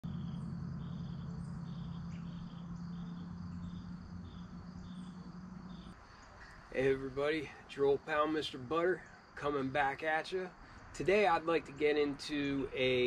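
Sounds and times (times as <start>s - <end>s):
steady low hum: 0.0s - 8.4s
crickets chirping: 0.0s - 13.0s.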